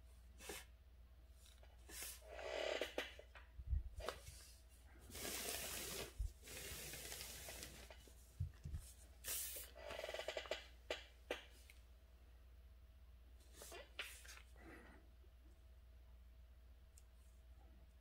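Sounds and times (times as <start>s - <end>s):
brush swishing across paper: 4.2s - 7.9s, 8.8s - 9.7s.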